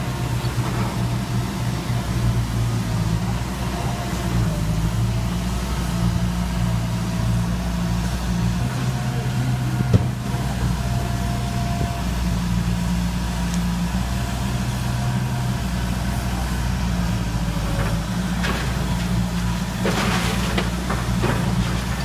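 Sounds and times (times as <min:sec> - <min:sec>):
excavator diesel engine running: 0:00.0 - 0:22.0
masonry cracking and clattering: 0:17.6 - 0:22.0.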